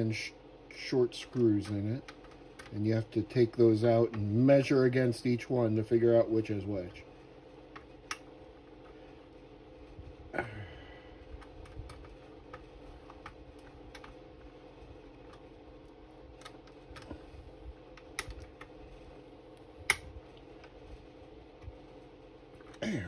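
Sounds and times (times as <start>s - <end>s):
plastic parts clicking and tapping: 1.3s - 2.7s, 11.4s - 14.5s, 16.4s - 17.3s, 17.9s - 18.8s.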